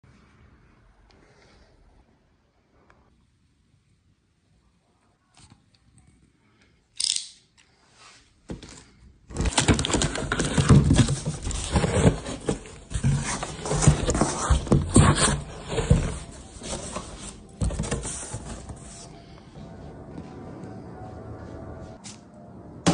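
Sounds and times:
cardboard rustling and scraping: 9.3 - 19.3.

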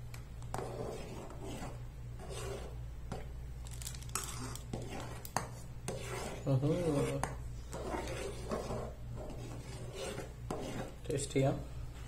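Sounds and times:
metal spoon scraping steel pot: 5.9 - 11.0.

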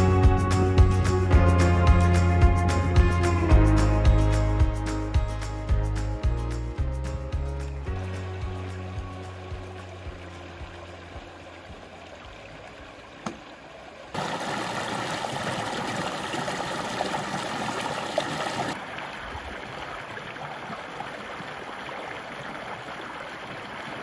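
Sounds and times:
creek water flowing over rocks: 7.0 - 24.0.

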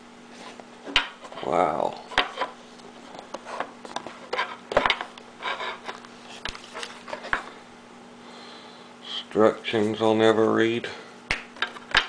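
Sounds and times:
paper and cardboard rustling: 2.3 - 7.5.

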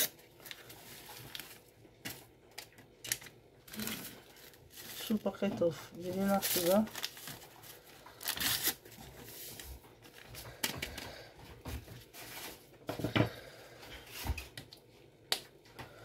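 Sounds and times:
paper sachet crinkling: 0.0 - 10.6.

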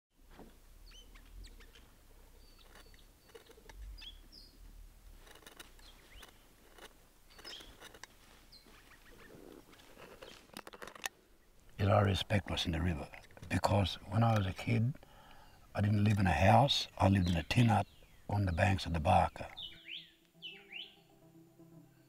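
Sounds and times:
birds chirping and whistling: 0.8 - 4.7, 5.8 - 6.5, 7.3 - 10.5, 15.1 - 21.1
sharp clicks: 2.6 - 4.0, 5.2 - 8.1.

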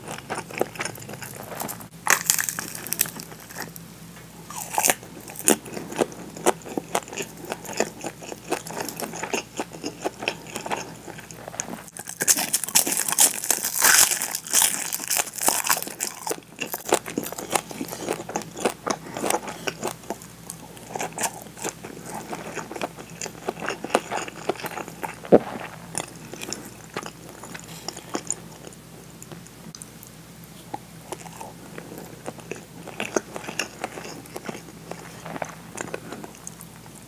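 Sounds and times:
wet chewing of rice: 0.0 - 3.8, 4.5 - 29.9, 30.5 - 37.0
crisp seaweed crunching: 0.1 - 3.8, 4.5 - 28.7.

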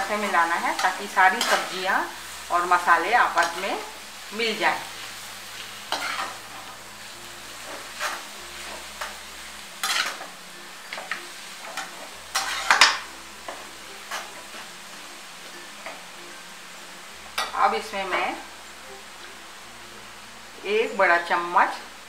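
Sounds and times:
faint sizzle of stir-frying: 0.0 - 22.0
skimmer scraping and clinking pan: 10.9 - 14.6.

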